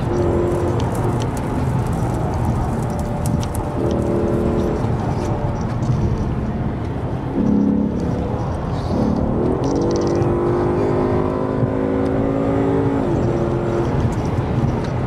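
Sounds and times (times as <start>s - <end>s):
car engine running: 0.0s - 15.0s
humming engine tone: 0.0s - 15.0s
tyre and wind noise: 0.0s - 15.0s.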